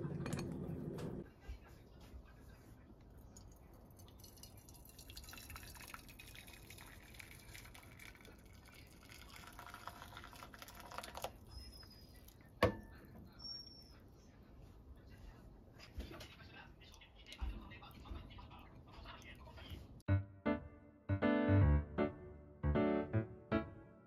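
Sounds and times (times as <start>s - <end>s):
water pouring into pan: 3.8s - 11.5s.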